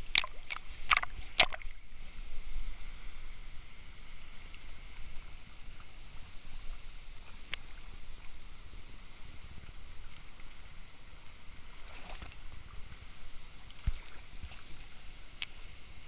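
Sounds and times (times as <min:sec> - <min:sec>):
sharp water splashes: 0:00.0 - 0:01.8.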